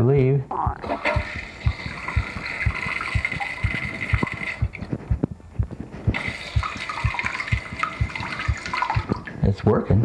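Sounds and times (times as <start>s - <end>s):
low thumps: 0.5s - 10.0s
toilet tank refilling: 0.8s - 4.8s, 6.1s - 9.4s.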